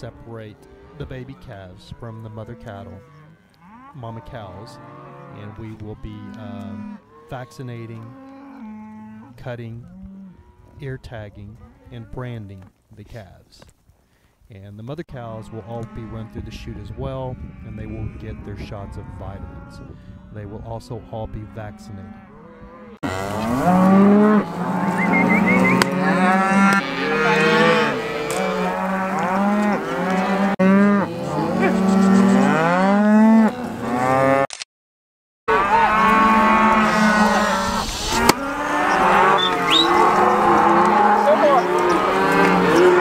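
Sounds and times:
cattle mooing: 0.0s - 12.2s, 21.2s - 34.4s, 35.5s - 43.0s.

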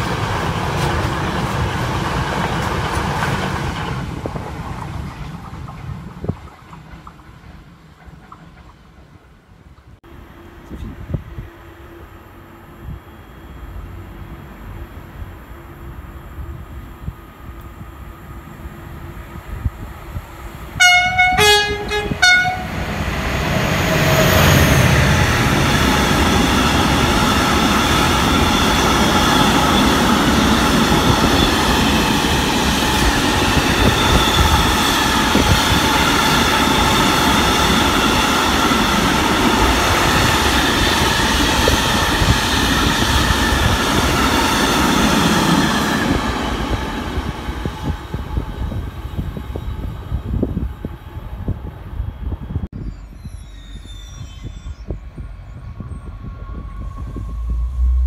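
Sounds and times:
train horn blasts: 20.8s - 22.8s.

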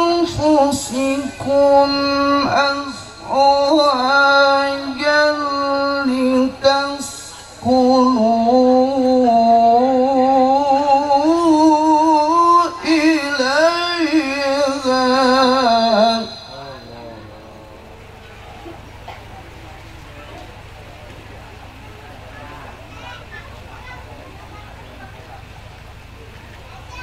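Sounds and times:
man chanting into a microphone: 0.0s - 18.0s.

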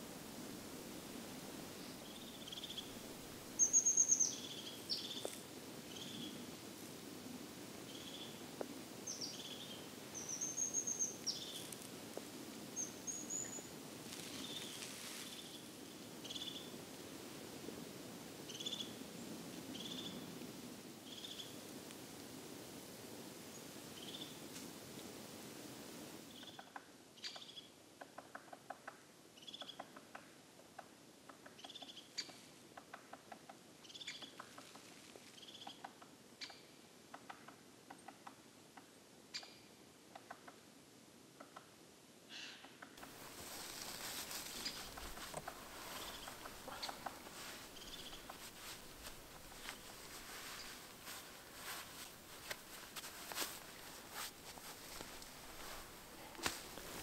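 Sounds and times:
songbird call notes: 1.8s - 3.0s, 3.6s - 6.4s, 7.9s - 8.4s, 9.0s - 11.8s, 12.7s - 16.8s, 18.5s - 19.0s, 19.7s - 20.3s, 21.1s - 21.6s, 23.5s - 24.4s, 26.3s - 27.8s, 33.8s - 34.6s, 35.4s - 36.7s, 43.6s - 50.9s
background hush: 43.0s - 57.0s.

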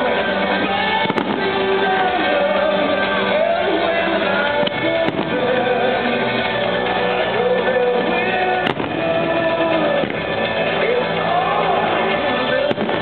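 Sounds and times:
soundtrack music with singing: 0.0s - 13.0s
firework bang: 1.0s - 1.8s, 5.0s - 5.5s, 8.6s - 9.2s, 12.7s - 13.0s.

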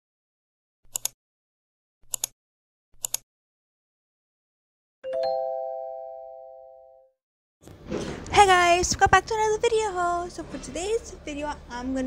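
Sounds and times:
short bursts of quick clicks: 0.9s - 1.2s
three-tone chime ringing: 5.0s - 7.1s.

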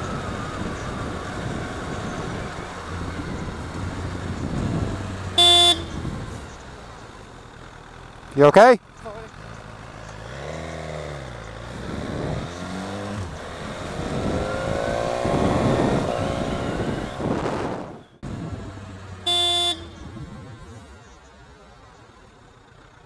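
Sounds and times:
wind noise on microphone: 0.0s - 6.4s, 11.8s - 18.7s
motorcycle engine accelerating: 0.0s - 23.0s
short horn toot: 5.4s - 6.0s, 19.3s - 20.1s.

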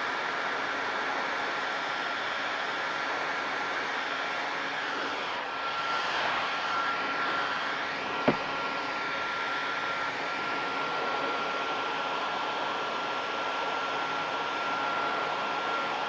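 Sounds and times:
heat gun blowing with fan whine: 0.0s - 16.0s
sharp knock: 8.2s - 8.5s.

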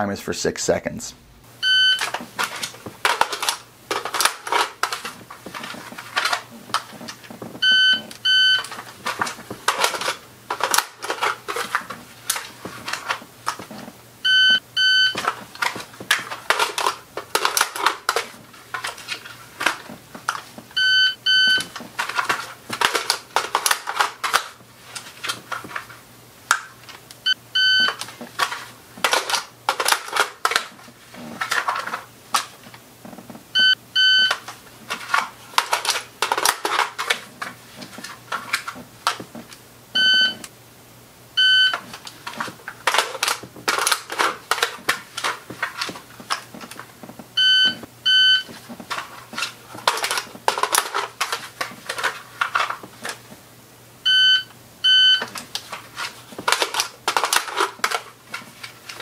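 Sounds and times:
shot timer beeps: 1.6s - 2.0s, 14.3s - 15.2s, 40.0s - 40.4s.

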